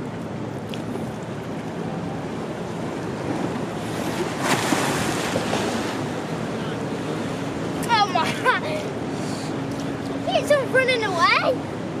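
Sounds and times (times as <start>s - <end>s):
sea waves on rocky shore: 0.8s - 8.3s.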